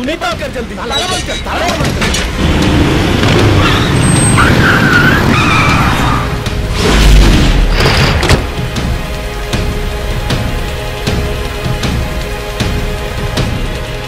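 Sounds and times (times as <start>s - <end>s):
film background music: 0.0s - 14.0s
car tyres screeching: 2.1s - 6.6s.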